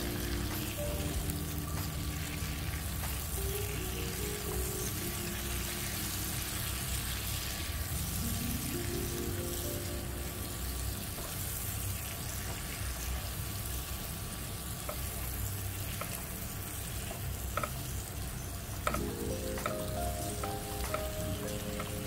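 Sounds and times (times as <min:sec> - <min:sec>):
mushrooms sizzling in a frying pan: 0:00.0 - 0:22.0
tongs clicking against pan: 0:17.2 - 0:17.8.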